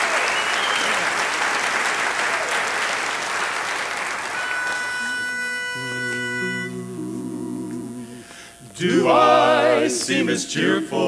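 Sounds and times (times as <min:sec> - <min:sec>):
audience applause: 0:00.0 - 0:05.9
pitch pipe note: 0:04.3 - 0:08.5
men singing close harmony: 0:05.8 - 0:11.0.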